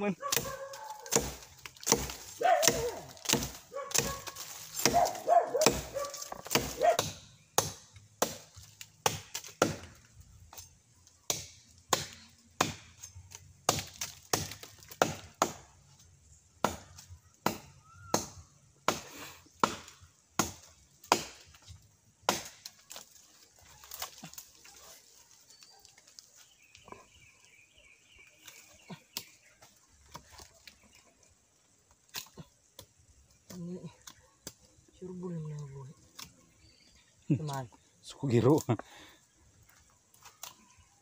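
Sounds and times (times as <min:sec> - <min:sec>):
knife chopping into wood: 0:00.3 - 0:10.0, 0:11.3 - 0:12.9, 0:13.6 - 0:15.7, 0:16.6 - 0:21.5, 0:22.3 - 0:23.0.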